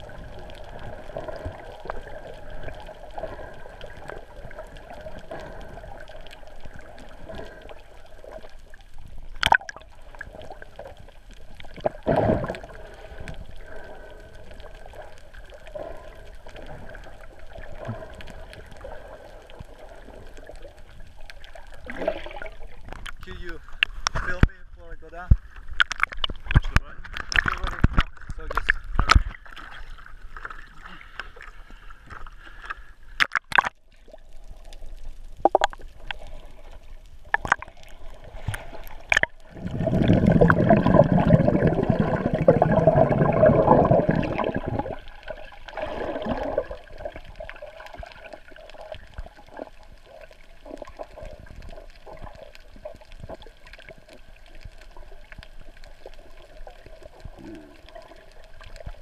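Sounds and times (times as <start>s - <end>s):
rush of bubbles: 0.0s - 23.0s, 33.2s - 59.0s
water knocks and splashes: 25.2s - 30.6s, 33.2s - 33.8s, 37.3s - 48.4s.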